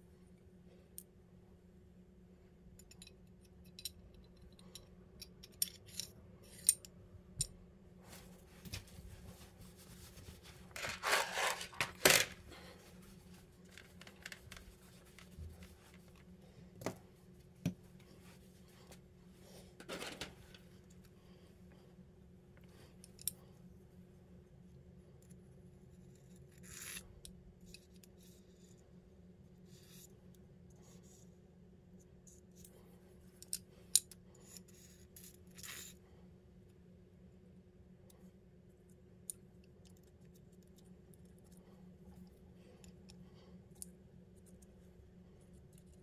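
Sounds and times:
metal parts clicking and clinking: 2.7s - 7.5s, 10.8s - 12.4s, 13.7s - 14.6s
scraping rustle: 8.1s - 16.2s.

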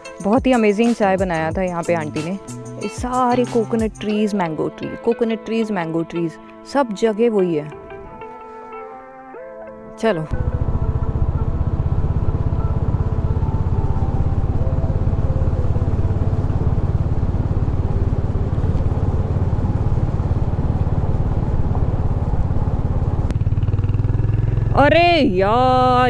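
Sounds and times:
motorcycle engine running: 10.3s - 26.0s.

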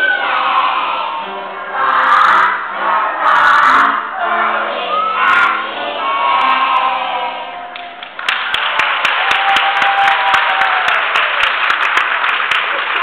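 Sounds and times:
crowd applauding: 7.7s - 13.0s.

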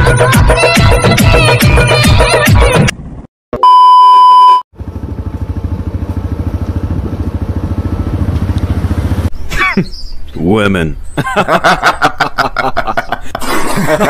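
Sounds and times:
test beep with glitch effect: 3.6s - 4.6s.

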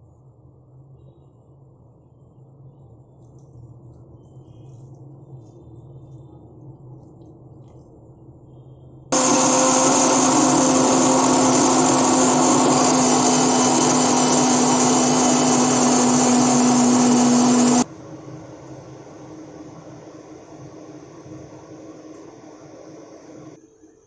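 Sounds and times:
mixer grinder motor whirring: 9.1s - 17.9s.

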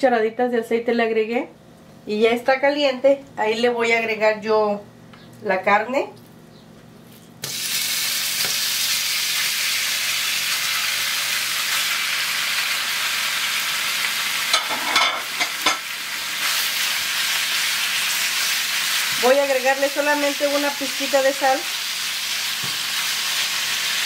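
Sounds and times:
meat sizzling in oil: 7.4s - 24.0s.

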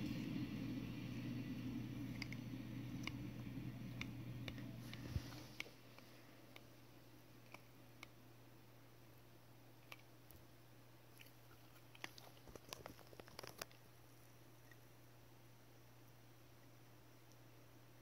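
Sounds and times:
low hum: 0.0s - 10.0s
faint clicks and crackles: 1.5s - 6.7s, 11.2s - 13.9s.

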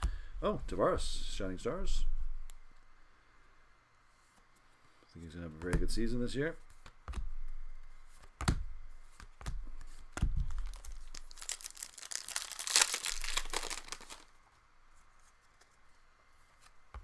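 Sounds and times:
foil wrapper tearing and crinkling: 10.5s - 14.3s.

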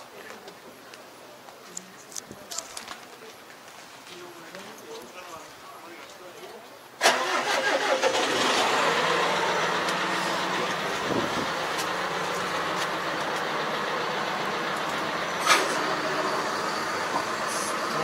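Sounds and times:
tractor diesel engine running: 7.0s - 18.0s.

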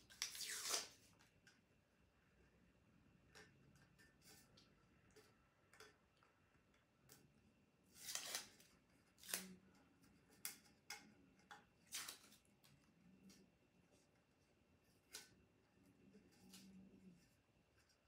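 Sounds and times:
tape peeling off: 0.1s - 1.0s, 7.9s - 8.6s.

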